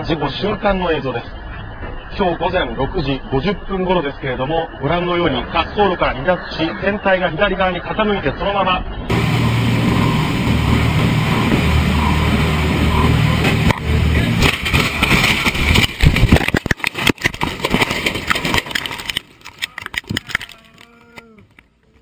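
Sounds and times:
light aircraft engine running: 9.1 - 16.1
plane crashing through trees: 9.1 - 20.9
cracking and rattling wreckage: 9.1 - 22.0.

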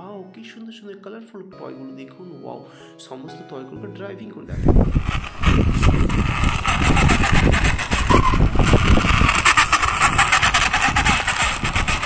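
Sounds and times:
engine-like running sound: 4.8 - 12.0.

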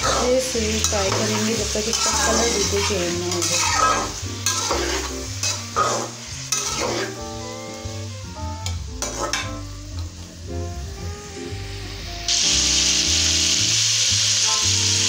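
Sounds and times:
spatula scraping pan: 0.0 - 9.6
chicken sizzling in hot oil: 0.0 - 15.0.

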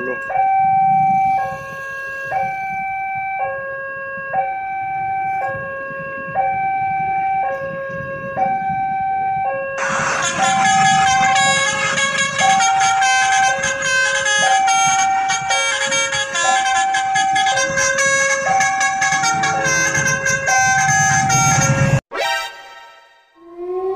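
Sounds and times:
level crossing two-tone alarm: 0.0 - 23.4
loud multi-tone rhythmic sound: 9.8 - 23.2.

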